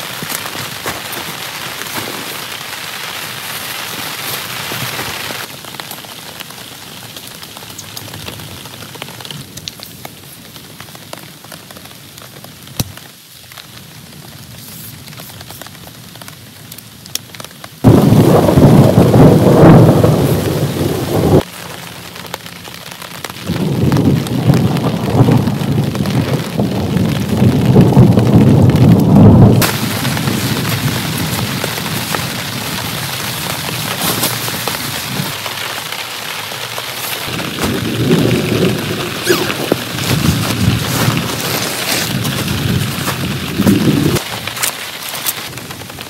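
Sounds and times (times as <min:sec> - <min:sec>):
heavy rain falling: 0:00.0 - 0:46.0
thunder rumbling: 0:17.8 - 0:21.5, 0:23.2 - 0:44.4.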